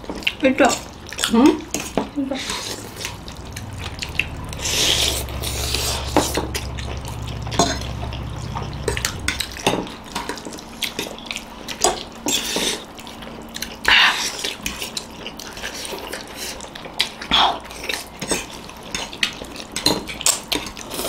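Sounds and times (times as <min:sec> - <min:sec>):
noodles being slurped: 0:00.2 - 0:03.6
low hum: 0:00.8 - 0:11.1.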